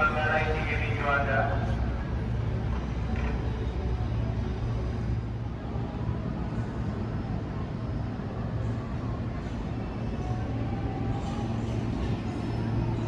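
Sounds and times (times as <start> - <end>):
railway station background rumble: 0.0 - 13.0.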